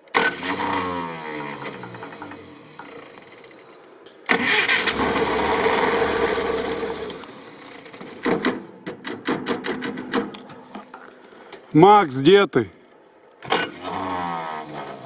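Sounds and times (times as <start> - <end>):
engine starting and running: 0.0 - 8.6, 13.4 - 15.0.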